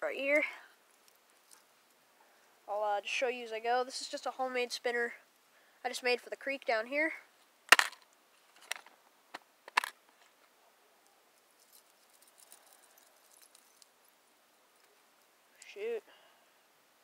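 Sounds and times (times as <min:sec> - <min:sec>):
rustling of handling: 0:00.8 - 0:02.2, 0:07.4 - 0:09.0, 0:09.7 - 0:15.8.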